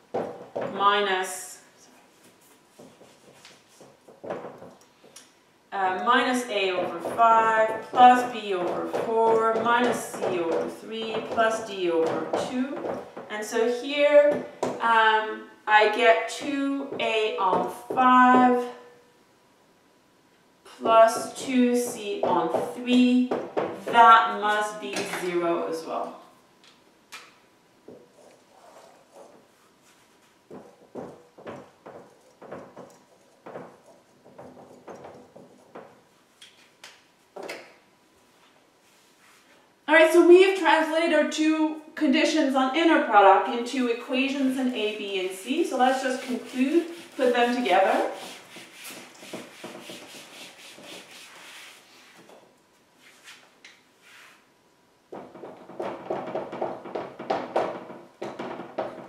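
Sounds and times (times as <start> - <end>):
eraser rubbing whiteboard: 2.0 - 4.2, 28.2 - 31.2, 31.9 - 36.8, 44.4 - 52.4, 53.0 - 54.5
marker writing on whiteboard: 2.0 - 4.8, 6.0 - 13.3, 20.9 - 24.1, 27.9 - 36.7, 44.6 - 52.4.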